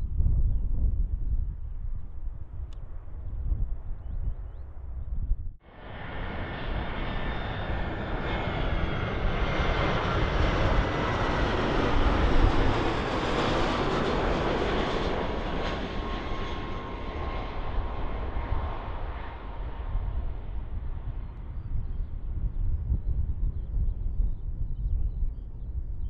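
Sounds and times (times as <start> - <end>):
airliner engines roaring: 5.6 - 24.5.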